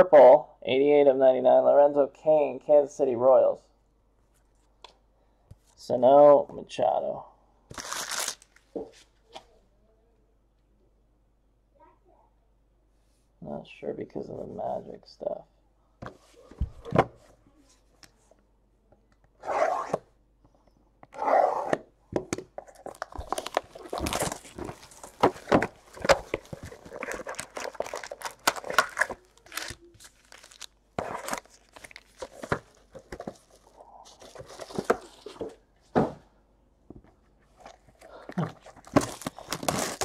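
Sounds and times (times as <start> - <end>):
wrappers crinkling and clicking: 22.7 - 33.7, 37.7 - 40.0
paper ripping: 23.0 - 33.1.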